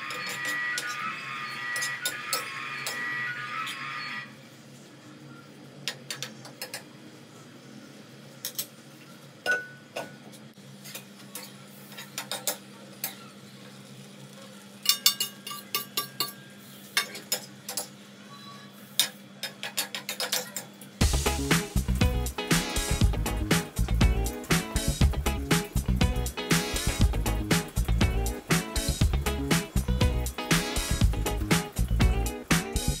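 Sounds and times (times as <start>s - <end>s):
steel spoon scraping metal pan: 0.0s - 4.2s.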